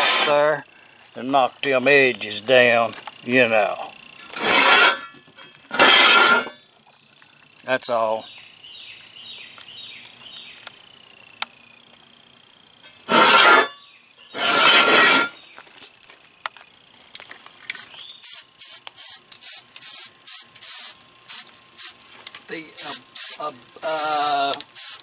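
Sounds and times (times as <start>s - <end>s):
aerosol spray hiss: 17.7s - 22.0s, 22.6s - 25.0s.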